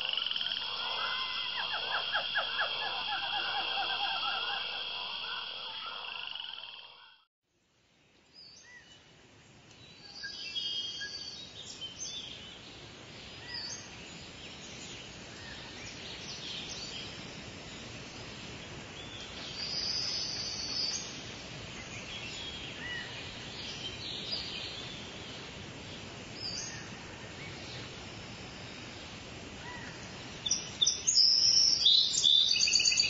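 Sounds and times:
birds chirping: 0:00.0 - 0:07.1
outdoor background hiss: 0:00.0 - 0:33.0.

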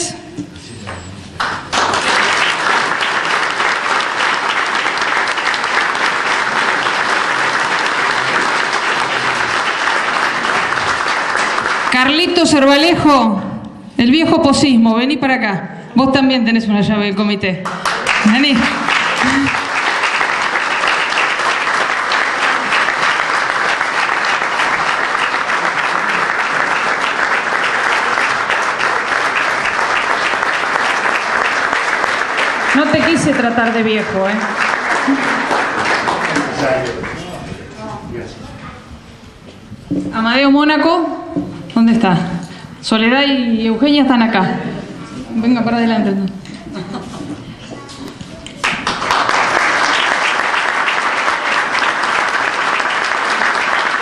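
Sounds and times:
audience applauding: 0:00.8 - 0:12.5, 0:17.6 - 0:37.7, 0:48.3 - 0:54.0.

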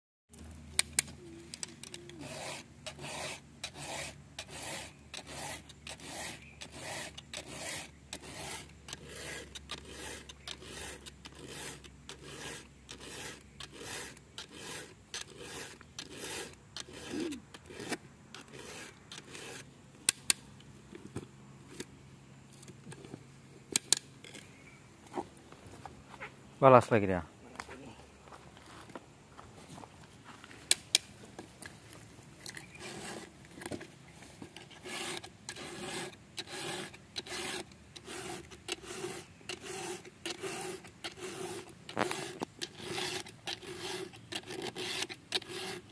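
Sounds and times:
file rasping on chainsaw chain: 0:01.9 - 0:19.7, 0:32.7 - 0:33.3, 0:34.6 - 0:45.9.

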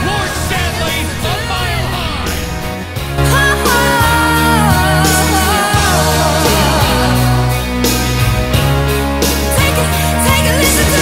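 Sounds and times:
person singing pop ballad: 0:00.0 - 0:11.0
sustained bass and chords: 0:00.0 - 0:11.0.

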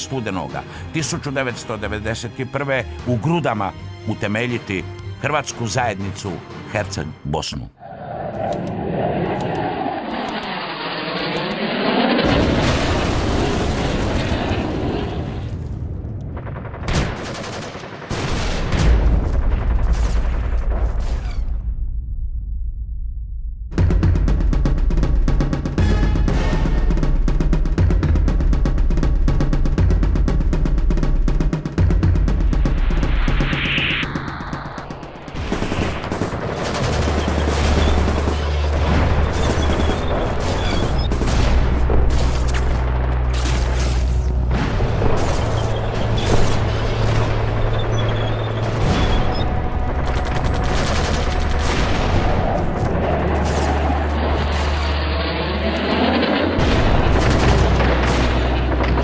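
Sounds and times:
deep rumble: 0:07.8 - 0:16.9, 0:18.8 - 0:59.0
explosions: 0:07.8 - 0:22.2, 0:31.8 - 0:59.0
rapid gunfire: 0:16.3 - 0:19.9, 0:34.2 - 0:43.8, 0:44.5 - 0:54.9, 0:56.0 - 0:59.0
gunshots: 0:16.3 - 0:21.1, 0:34.1 - 0:59.0.

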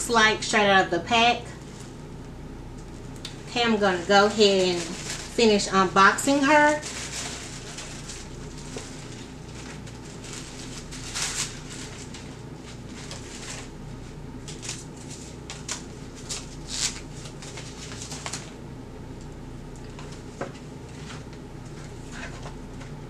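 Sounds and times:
steady low hum: 0:00.0 - 0:23.0
packaging rustling and crinkling: 0:04.0 - 0:13.7, 0:14.4 - 0:18.6.

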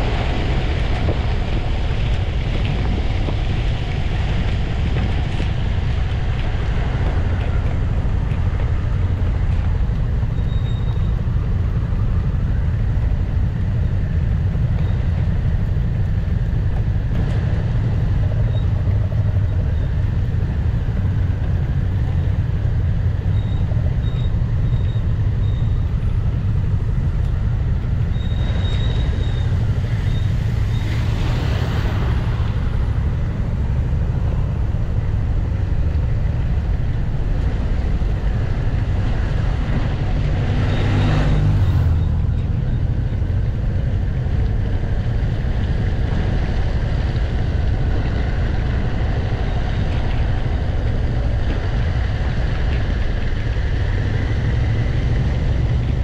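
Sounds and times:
wind rush: 0:00.0 - 0:56.0.

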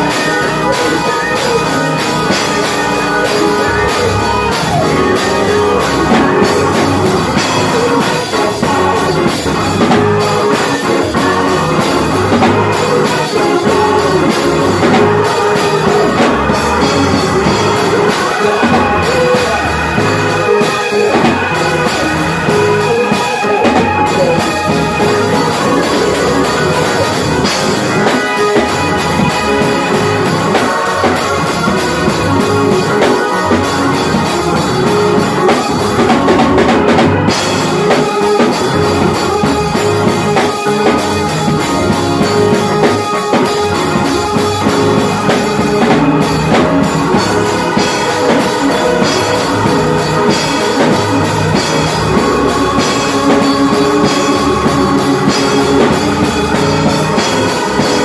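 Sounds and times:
drum kit beat: 0:00.0 - 0:58.0
group singing: 0:00.0 - 0:58.0
organ playing chords: 0:00.0 - 0:58.0.

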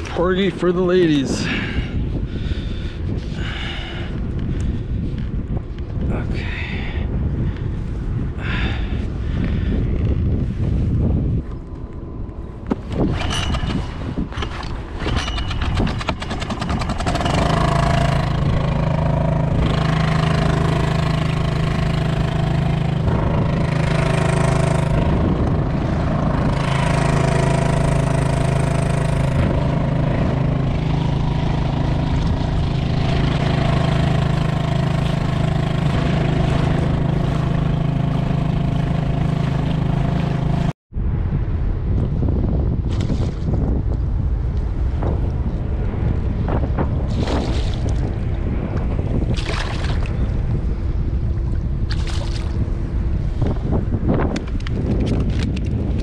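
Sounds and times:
outboard motor running: 0:12.6 - 0:40.8, 0:47.0 - 0:56.0
pull cord rattling: 0:12.8 - 0:18.4.

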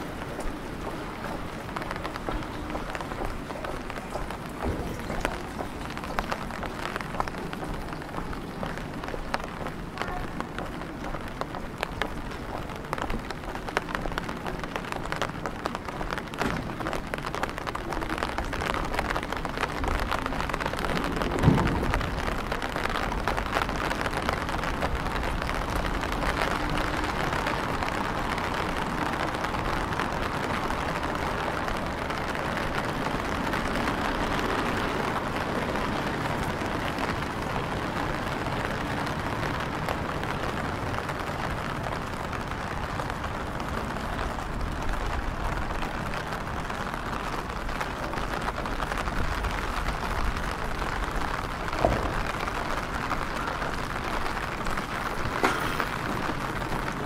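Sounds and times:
rain pattering on paving: 0:00.0 - 0:57.0.

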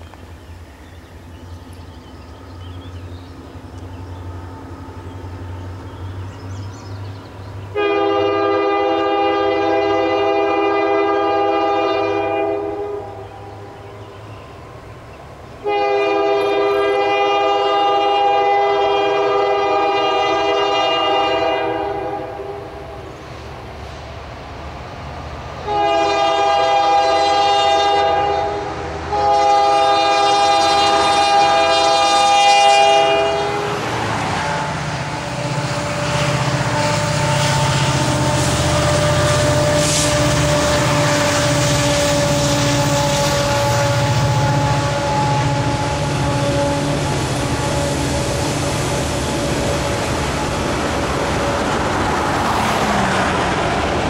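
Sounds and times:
locomotive air horn blasts: 0:07.7 - 0:13.3, 0:15.6 - 0:22.9, 0:25.6 - 0:50.5.

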